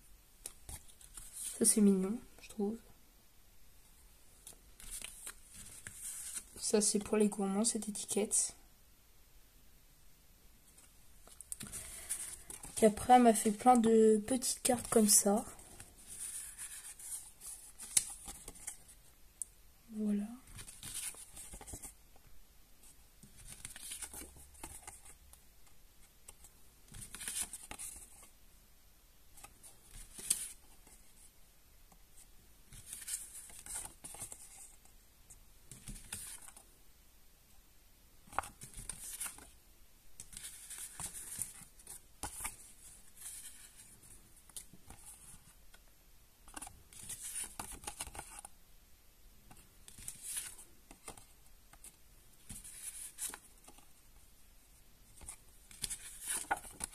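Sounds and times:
paper cards rustling: 0.4s - 1.8s, 4.4s - 7.0s, 10.8s - 19.1s, 20.4s - 22.0s, 23.2s - 25.4s, 26.2s - 28.3s, 29.4s - 31.2s, 32.7s - 34.9s, 35.7s - 36.6s, 38.3s - 39.6s, 40.2s - 45.6s, 46.5s - 48.5s, 49.5s - 53.9s, 55.1s - 56.9s.

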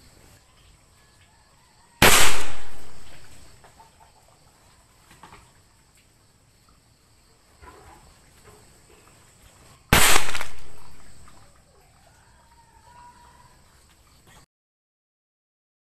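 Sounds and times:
loud explosive bang: 2.0s - 3.4s, 9.9s - 11.1s.

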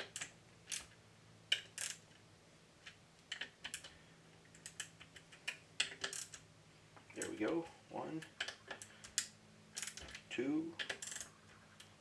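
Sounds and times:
hand wrench clicking: 0.0s - 2.2s, 2.8s - 6.4s, 8.2s - 12.0s.

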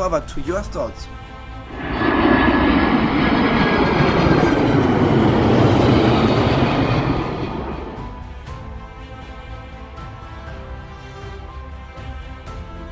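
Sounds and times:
loud rushing rumble: 1.6s - 8.5s.

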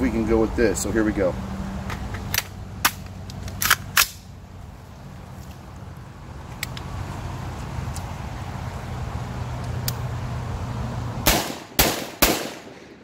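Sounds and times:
gunshots: 11.2s - 13.0s.

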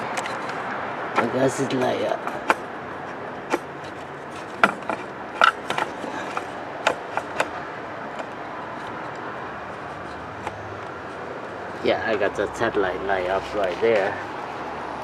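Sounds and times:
knocks and scrapes on engine parts: 0.0s - 14.7s
steady background hum: 0.0s - 15.0s.

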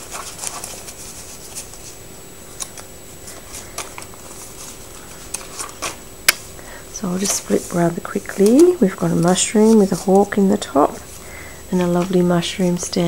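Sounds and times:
paper pages rustling: 0.0s - 6.5s, 7.1s - 12.6s.

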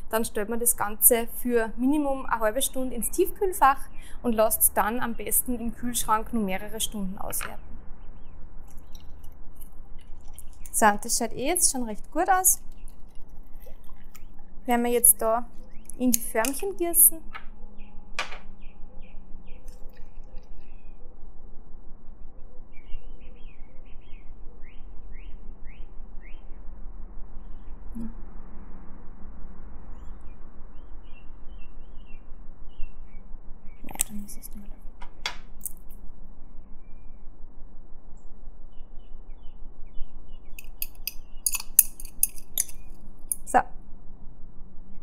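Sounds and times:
songbird singing: 0.0s - 21.2s, 22.1s - 28.2s, 29.9s - 34.9s, 36.6s - 37.4s, 38.1s - 43.6s
steady low hum: 0.0s - 45.0s
metal utensil scraping glass jug: 40.8s - 42.8s.

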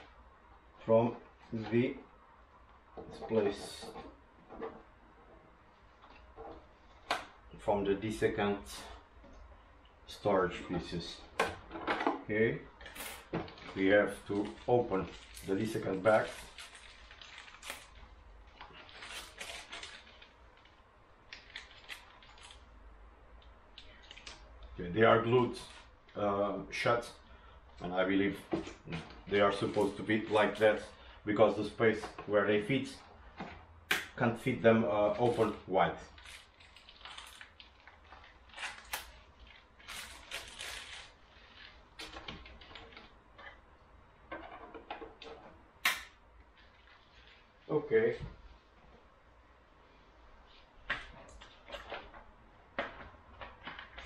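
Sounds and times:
plastic packet crinkling: 12.8s - 22.8s, 35.1s - 43.1s.

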